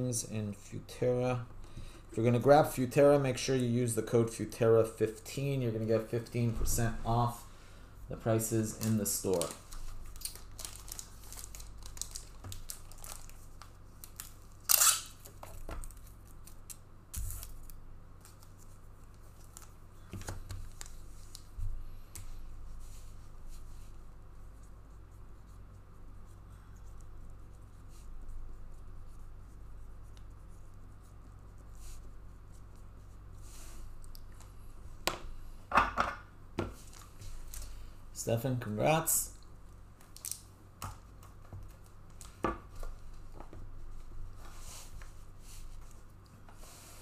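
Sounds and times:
low steady hum: 0.0 - 47.0
cards rustling and clicking: 8.6 - 22.3
packaging tearing: 8.8 - 17.8, 40.1 - 40.4.

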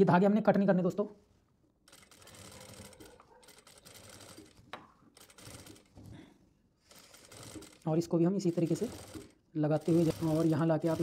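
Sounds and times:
sewing machine running: 1.9 - 6.0, 6.8 - 11.0.

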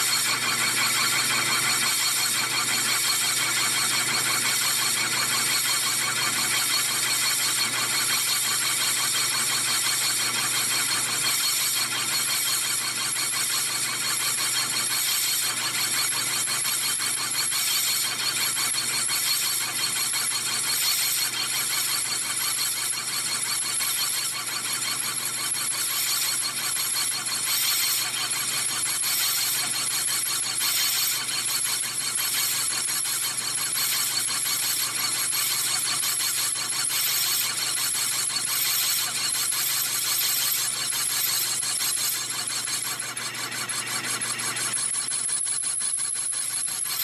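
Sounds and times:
lathe tool squealing: 0.0 - 47.0
low hum of lathe: 24.3 - 45.8.

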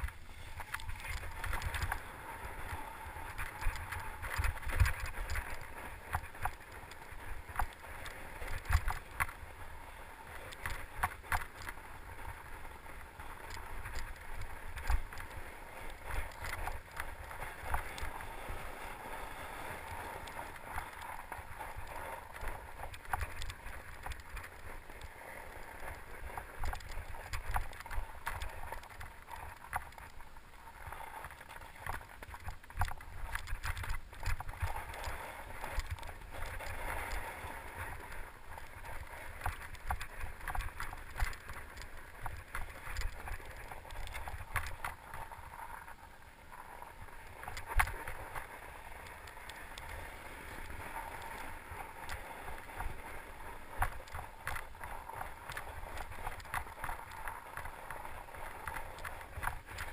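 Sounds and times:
bike rattling clicks and knocks: 0.0 - 2.0, 21.8 - 24.7, 39.4 - 45.0
bike tyres on snow: 0.0 - 59.9
wind rumble on microphone: 0.0 - 59.9.

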